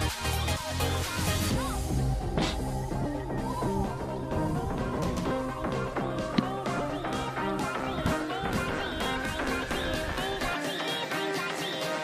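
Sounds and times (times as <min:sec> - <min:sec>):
upbeat guitar music: 0:03.1 - 0:11.1.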